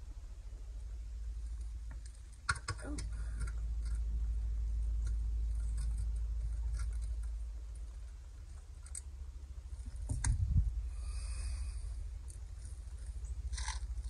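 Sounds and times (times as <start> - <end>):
low steady rumble: 0.0 - 14.0
hand tool clicking and scraping: 12.2 - 13.9.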